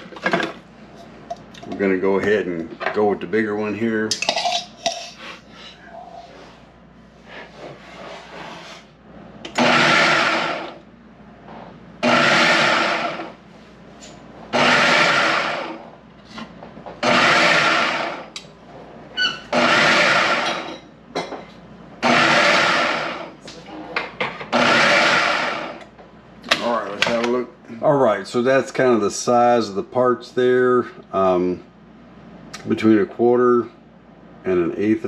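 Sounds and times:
food processor chopping: 9.5s - 10.8s, 12.0s - 13.4s, 14.5s - 15.8s, 17.0s - 18.3s, 19.5s - 20.8s, 22.0s - 23.4s, 24.5s - 25.8s.

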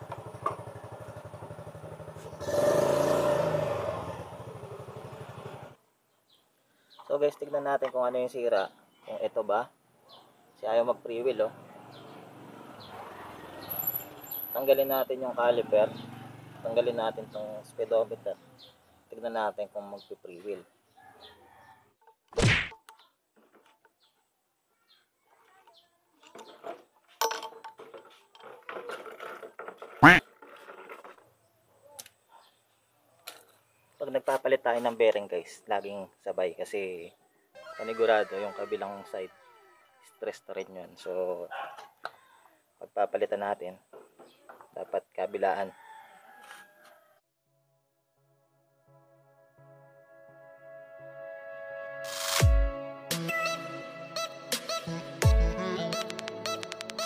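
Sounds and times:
scooter engine idling and revving: 0.0s - 5.8s, 11.4s - 18.4s
metal tool clinking in wheel hub: 27.2s - 29.3s.

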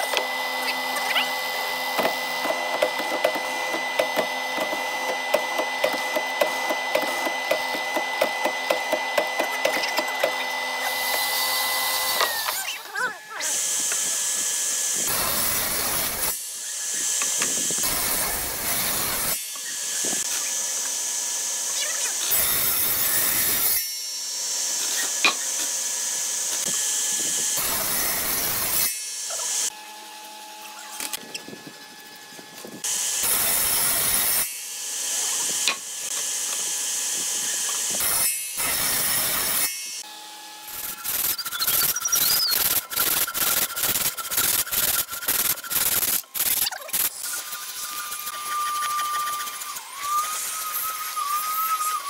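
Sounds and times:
sawing hardwood: 0.0s - 29.8s, 40.7s - 52.0s.

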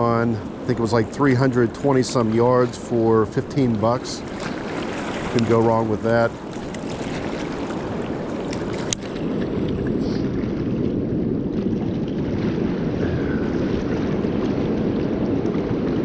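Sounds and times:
river rushing: 2.2s - 9.2s.

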